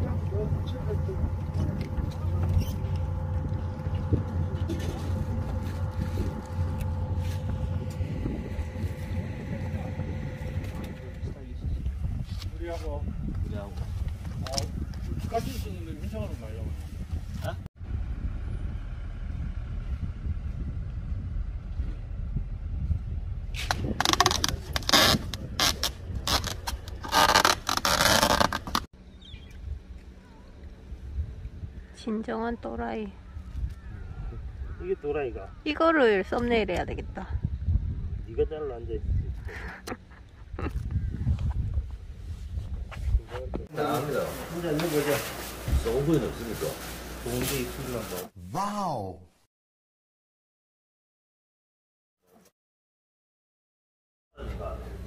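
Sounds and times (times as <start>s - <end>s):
boat machinery droning: 0.0s - 12.0s
thin steady whine: 0.0s - 12.1s
packing tape pulled off roll: 23.6s - 28.9s.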